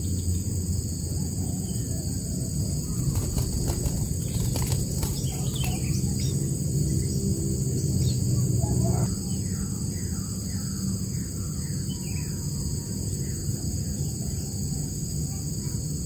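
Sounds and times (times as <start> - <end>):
nestling birds chirping: 0.0 - 14.7
high insect drone: 0.0 - 16.0
wing flaps rustling twigs: 2.7 - 6.5.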